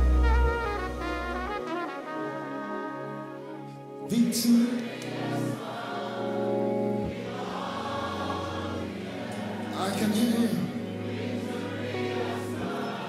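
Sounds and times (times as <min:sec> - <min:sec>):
choir and congregation singing: 0:00.0 - 0:13.0
live gospel band: 0:00.0 - 0:13.0.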